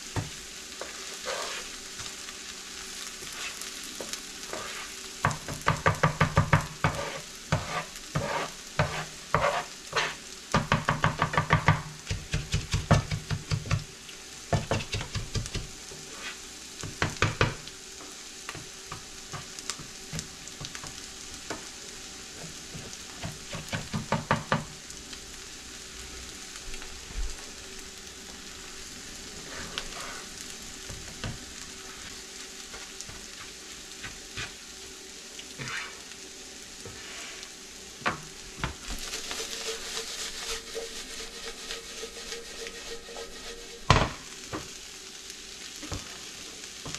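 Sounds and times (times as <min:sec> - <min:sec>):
food sizzling in a frying pan: 0:00.0 - 0:46.9
plastic spatula scraping a pan: 0:00.8 - 0:01.8, 0:03.2 - 0:03.7, 0:04.5 - 0:05.0, 0:06.8 - 0:10.2, 0:16.0 - 0:16.4, 0:29.4 - 0:30.4, 0:35.6 - 0:36.0, 0:38.9 - 0:43.9.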